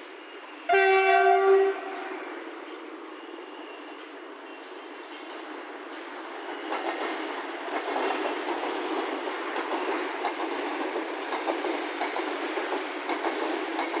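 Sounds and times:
train wheels clattering over rail joints: 0:04.1 - 0:14.0.

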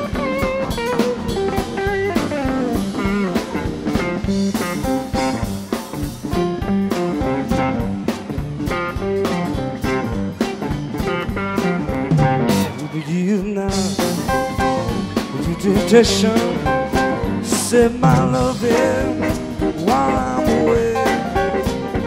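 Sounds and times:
bass guitar: 0:00.0 - 0:22.0
drums: 0:00.0 - 0:22.0
electric guitar lead: 0:00.0 - 0:22.0.

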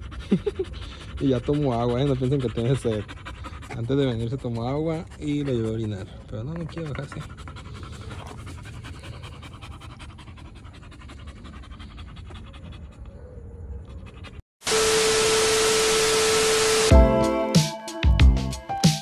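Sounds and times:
dog panting: 0:00.0 - 0:14.4
static hiss: 0:14.7 - 0:16.9.

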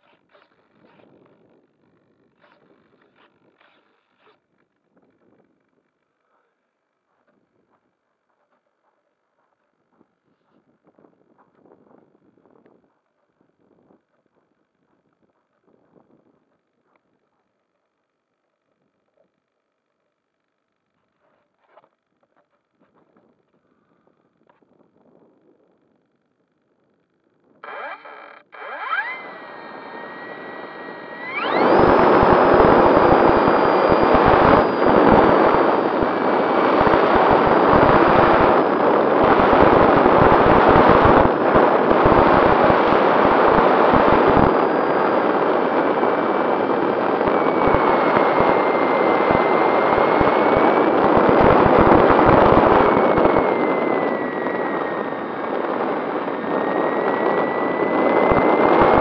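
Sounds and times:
model plane motor whine: 0:00.0 - 0:06.4, 0:27.6 - 0:59.0
propeller wash and wind: 0:28.9 - 0:59.0.

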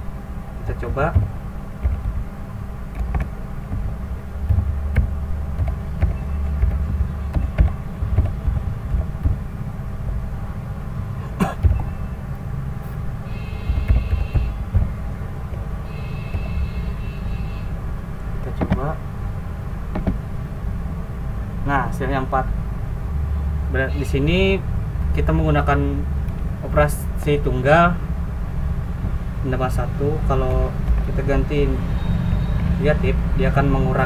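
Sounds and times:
low background rumble: 0:00.0 - 0:34.0
computer keyboard key clicks: 0:04.5 - 0:09.4.

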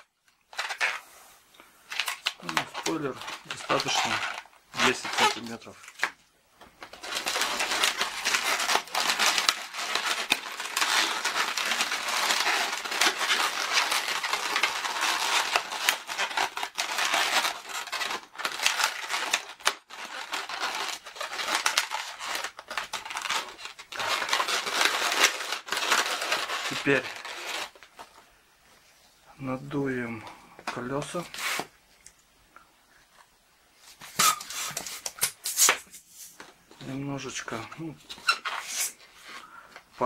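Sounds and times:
balloons rubbing crinkly: 0:00.0 - 0:05.9, 0:06.8 - 0:28.2.

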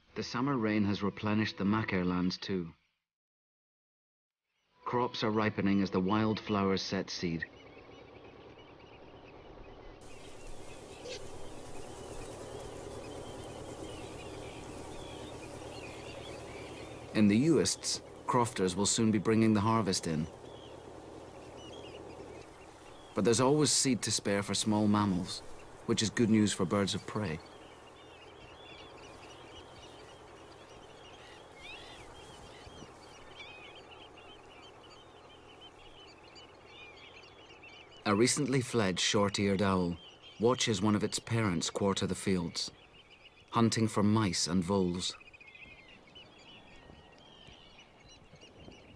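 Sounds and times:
small birds chirping: 0:04.5 - 0:48.9
steady outdoor hiss: 0:04.6 - 0:48.9
rising bird call: 0:07.4 - 0:44.0.

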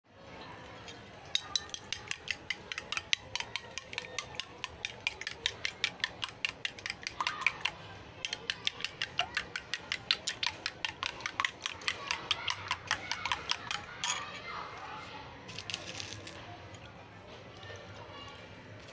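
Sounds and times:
utensil clicking against bowl: 0:01.4 - 0:14.2.

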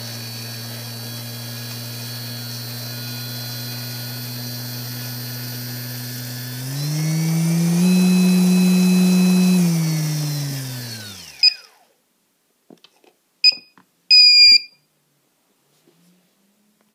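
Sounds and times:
electric motor whine: 0:00.0 - 0:11.9
short electronic beeps: 0:13.4 - 0:14.8.

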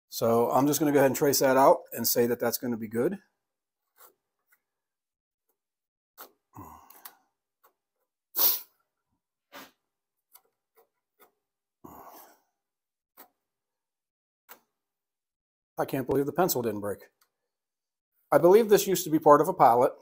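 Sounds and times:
breathing: 0:06.6 - 0:07.4, 0:11.8 - 0:12.6
sharp burst of breath: 0:08.4 - 0:08.7.

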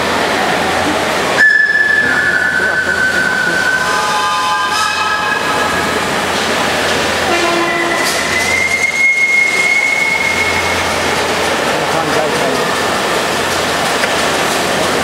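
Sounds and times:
busy hall hum: 0:00.0 - 0:15.0
model train steam whistles: 0:01.4 - 0:11.2.

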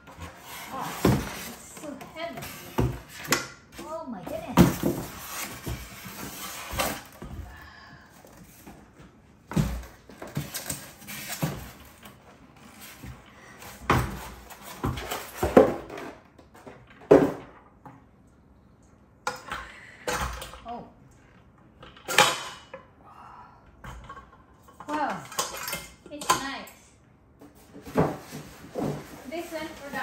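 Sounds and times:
foam packing scraping and knocking: 0:00.0 - 0:03.2, 0:27.7 - 0:30.0.

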